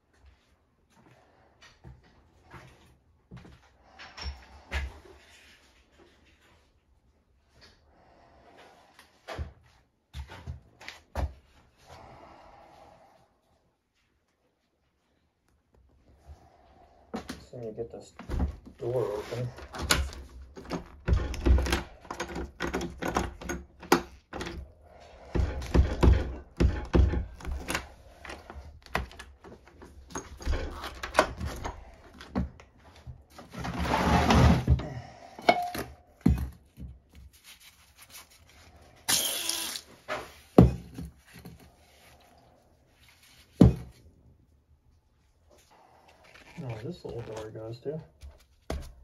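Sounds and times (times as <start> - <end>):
objects bumping: 19.6 - 37.0
wooden door knocking and rattling: 19.8 - 24.6, 25.3 - 27.8.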